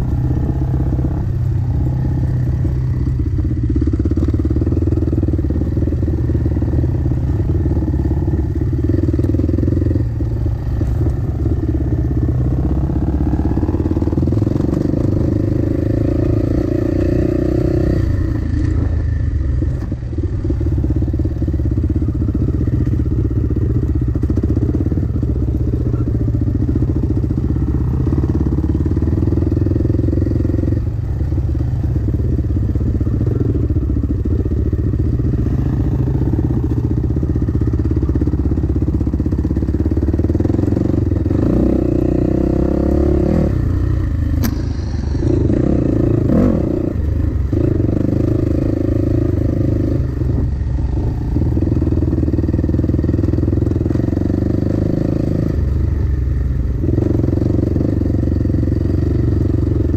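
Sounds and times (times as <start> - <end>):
dirt bike engine revving: 40.0 - 52.1.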